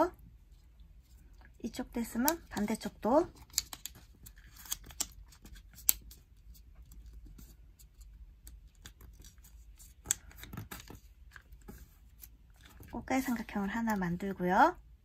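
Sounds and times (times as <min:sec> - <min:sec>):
crisp clicks: 0:03.4 - 0:05.2.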